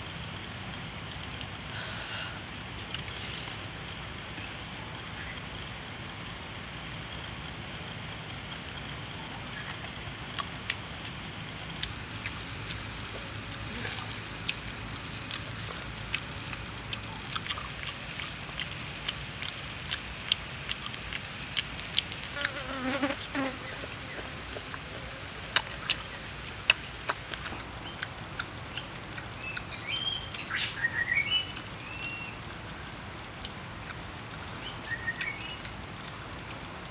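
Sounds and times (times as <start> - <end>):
steady hiss: 0.0 - 9.0, 11.3 - 36.9
sharp clicks and crackles: 2.6 - 23.2
insects buzzing: 11.8 - 26.4.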